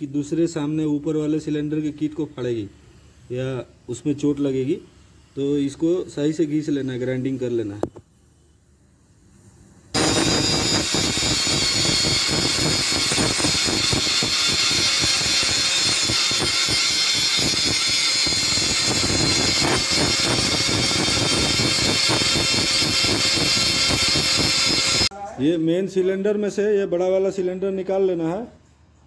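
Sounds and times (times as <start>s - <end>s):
angle grinder grinding metal: 10.0s - 25.1s.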